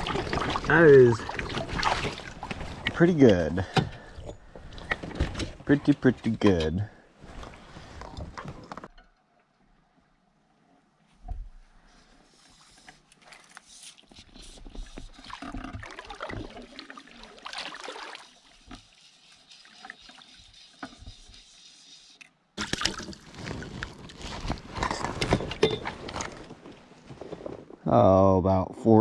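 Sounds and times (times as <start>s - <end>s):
water lapping against boat: 0.0s - 6.6s
rustling handling noise: 23.0s - 27.9s.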